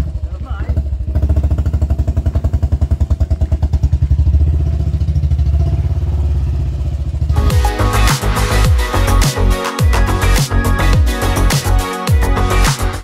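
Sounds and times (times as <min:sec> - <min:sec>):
motorcycle engine running: 0:00.0 - 0:09.1.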